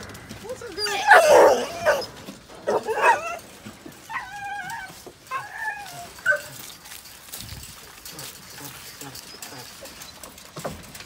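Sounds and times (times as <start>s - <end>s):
dogs barking and yipping: 0.0s - 11.0s
dog whining: 0.7s - 3.4s, 4.0s - 6.8s.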